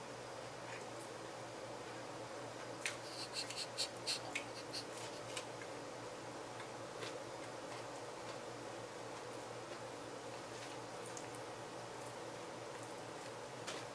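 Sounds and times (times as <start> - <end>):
steady low hum: 0.0 - 13.9
person chewing bread: 2.8 - 5.8, 6.5 - 8.5.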